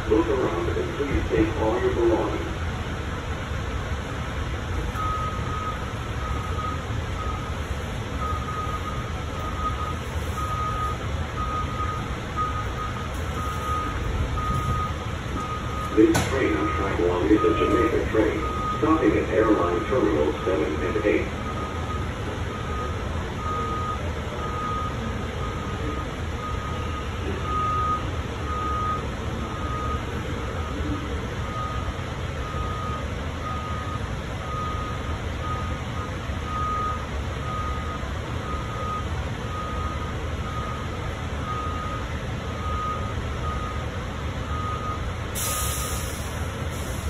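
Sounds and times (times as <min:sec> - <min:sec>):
train car low hum: 0:00.0 - 0:47.0
short hiss: 0:45.4 - 0:47.0.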